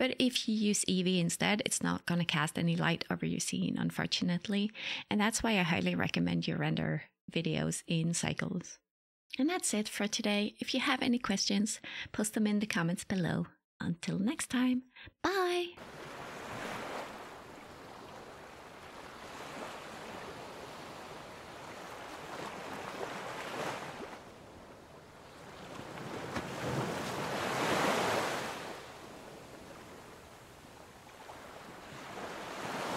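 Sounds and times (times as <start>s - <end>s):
ocean waves washing onto beach: 15.8s - 32.9s.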